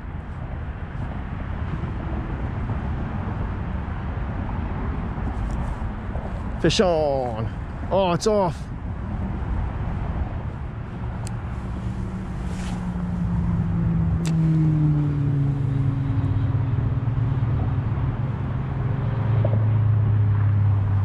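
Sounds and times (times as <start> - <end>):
outdoor background noise: 0.0 - 21.0
passing vehicle engine drone: 0.1 - 21.0.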